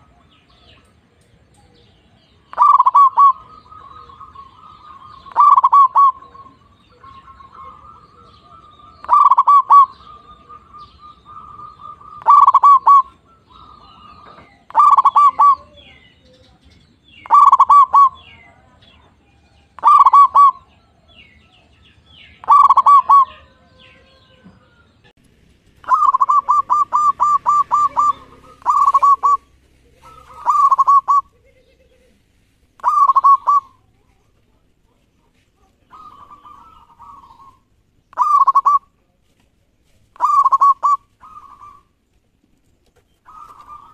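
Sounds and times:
dove cooing: 0.0s - 25.1s, 25.8s - 34.7s, 35.6s - 39.0s, 40.1s - 42.0s, 43.2s - 43.9s.

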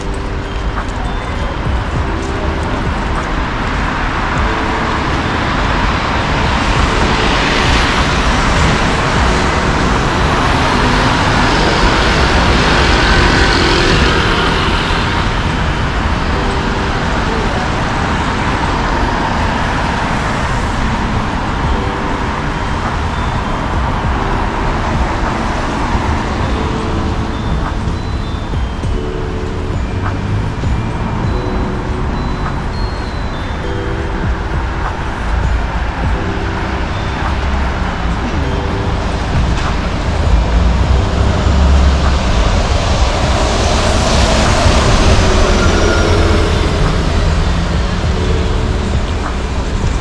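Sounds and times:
city street traffic: 0.0s - 50.0s
vehicles passing close by: 0.0s - 50.0s.

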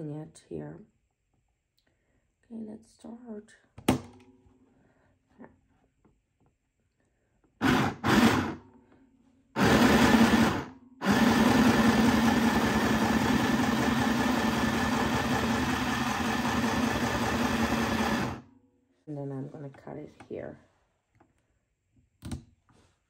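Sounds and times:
sewing machine running: 7.6s - 8.6s, 9.6s - 18.4s.

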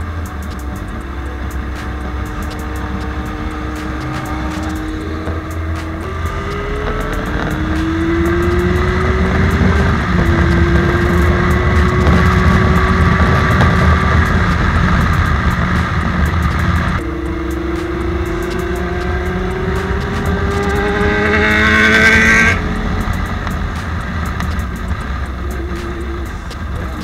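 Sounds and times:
motorcycle engine accelerating: 0.0s - 27.0s
wind rumble: 0.0s - 27.0s.

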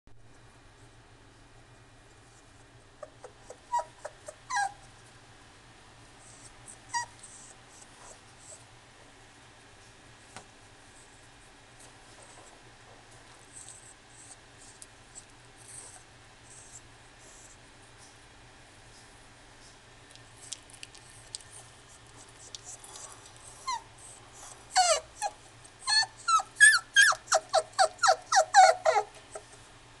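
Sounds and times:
puppy yipping and whimpering: 3.0s - 4.8s, 6.2s - 7.9s, 22.4s - 29.6s.

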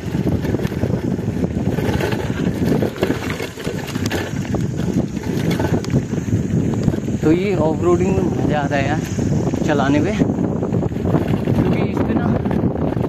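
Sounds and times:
bike rattling over stones: 0.0s - 13.0s
wind buffeting microphone: 0.0s - 13.0s
tyres crunching on gravel: 0.2s - 7.1s.

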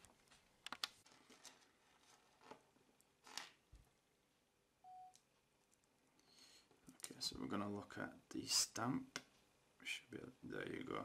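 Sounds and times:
short electronic beep: 4.8s - 5.2s.

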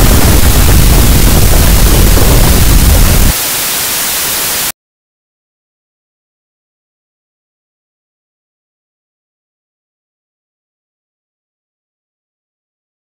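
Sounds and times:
loud distorted rumble: 0.0s - 3.4s
static hiss: 0.0s - 4.7s.

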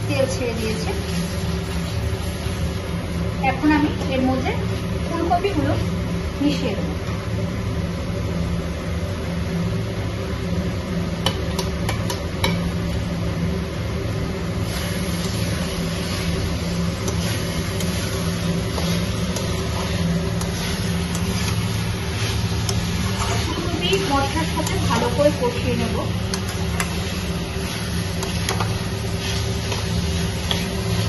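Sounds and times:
vegetables sizzling in a pan: 0.0s - 6.9s, 14.4s - 31.0s
steady low hum: 0.0s - 31.0s.

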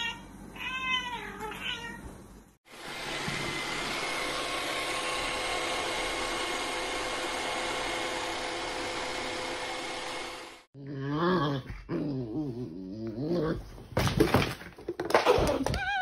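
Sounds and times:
robot vacuum whirring hum: 2.7s - 10.7s.

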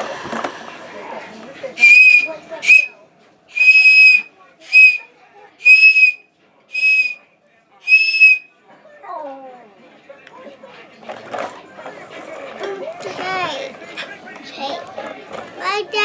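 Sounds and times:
toy whistle toots: 1.8s - 2.9s, 3.5s - 5.0s, 5.6s - 7.2s, 7.9s - 8.4s.

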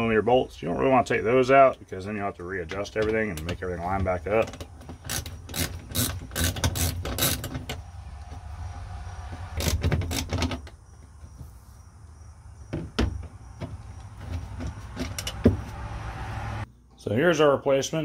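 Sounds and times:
metal-on-metal scraping: 4.4s - 10.6s.

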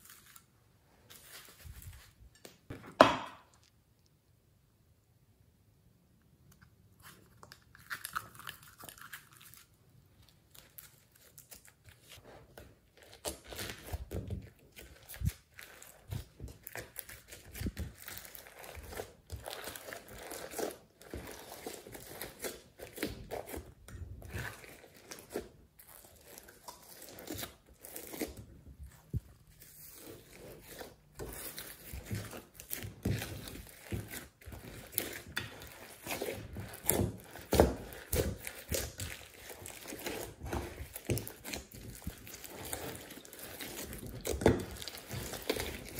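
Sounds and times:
slime crackling and popping: 31.3s - 45.9s.

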